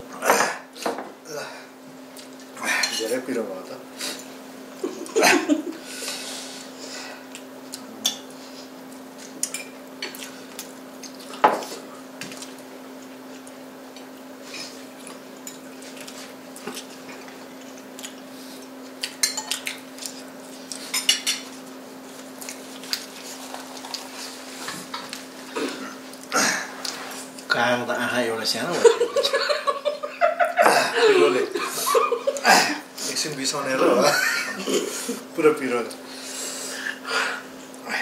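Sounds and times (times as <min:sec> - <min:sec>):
forks clinking on plates: 0:19.1 - 0:19.8, 0:20.9 - 0:21.5.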